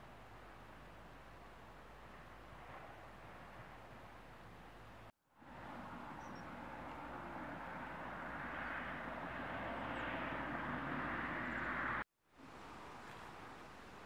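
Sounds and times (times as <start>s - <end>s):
distant engine rushing: 5.4s - 12.0s.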